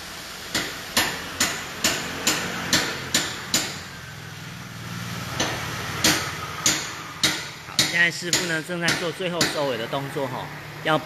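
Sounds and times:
hammer striking metal: 0.5 - 4.0, 5.4 - 9.9.

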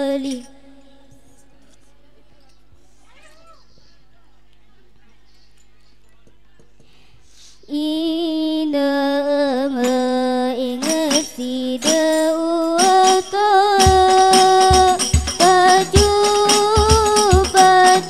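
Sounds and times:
girl singing: 0.0 - 1.4, 7.6 - 18.0
frame drums beating: 10.8 - 18.0.

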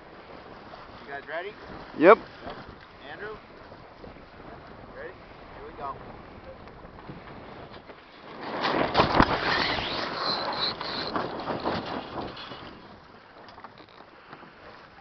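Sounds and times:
sail flapping: 0.0 - 15.0
water: 0.0 - 15.0
wind: 0.0 - 15.0
high squeak: 9.3 - 11.2.

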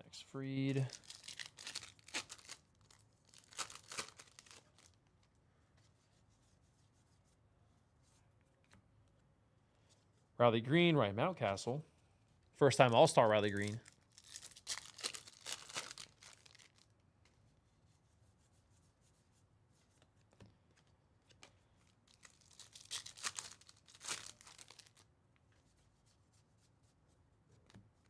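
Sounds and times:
foil wrappers crinkling and tearing: 0.8 - 5.0, 13.5 - 16.9, 21.8 - 25.1.

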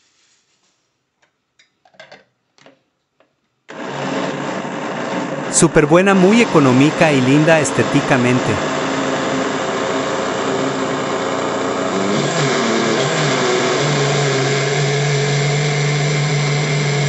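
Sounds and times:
blender running: 3.7 - 17.0.

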